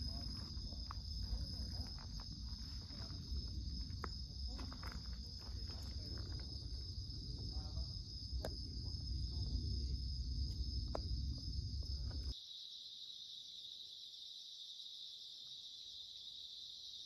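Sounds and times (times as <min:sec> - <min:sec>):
low rumble: 0:00.0 - 0:12.3
crickets trilling: 0:00.0 - 0:17.0.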